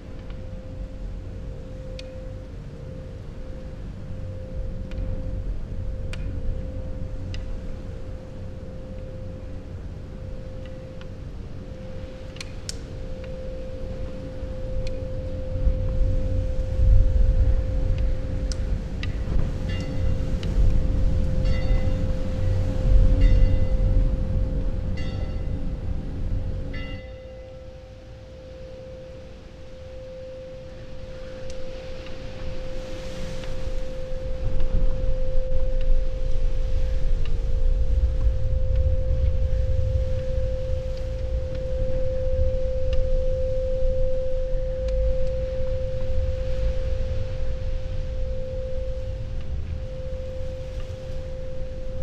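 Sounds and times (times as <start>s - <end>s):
steady pure tone drone: 0.0s - 52.0s
faint clicks: 12.3s - 13.4s
low rumble: 14.5s - 27.8s, 34.0s - 52.0s
bell-like chimes: 19.6s - 20.4s, 21.4s - 24.0s, 24.9s - 25.6s, 26.7s - 32.8s.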